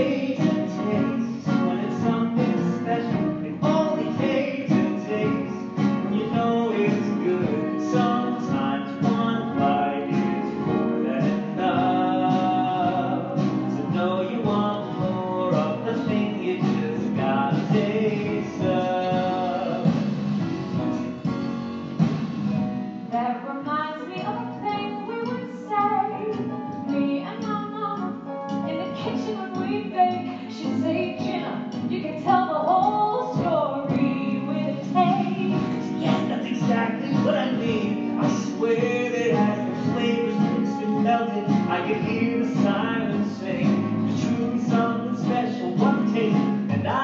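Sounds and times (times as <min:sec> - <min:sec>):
woman singing: 0:23.1 - 0:37.8.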